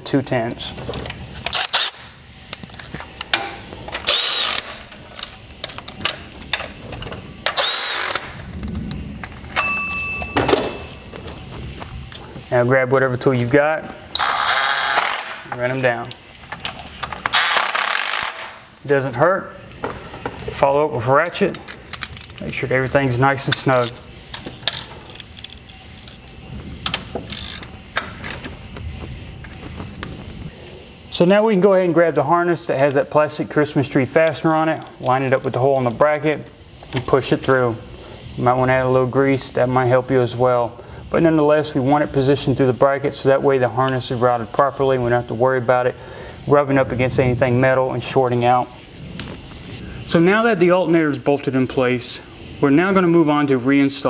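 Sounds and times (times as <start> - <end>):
cordless ratchet running: 4.1 - 4.8, 27.3 - 28.4
hand ratchet clicking: 21.6 - 22.5, 26.9 - 28.5.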